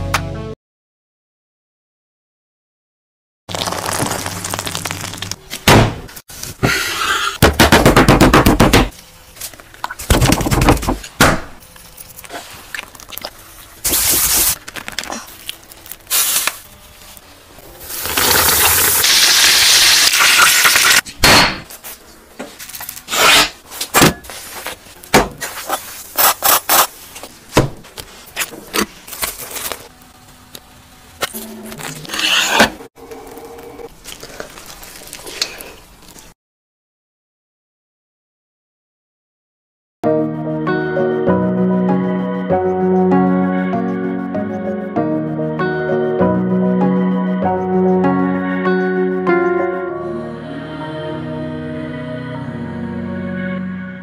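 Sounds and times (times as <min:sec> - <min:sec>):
cutlet sizzling in hot oil: 0:17.9 - 0:21.0
burger scraping and handling: 0:31.4 - 0:32.9.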